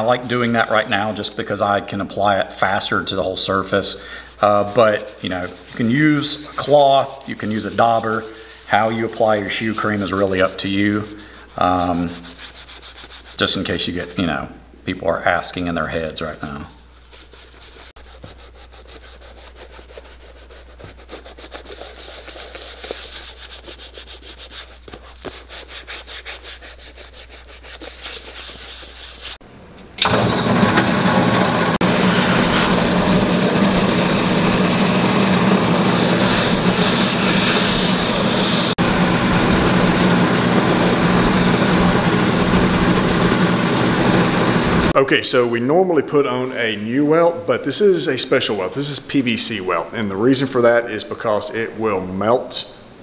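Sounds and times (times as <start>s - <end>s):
hand rubbing cream into boot: 0.0s - 14.3s, 15.9s - 29.4s, 31.8s - 38.7s
buffing machine humming: 30.0s - 44.9s.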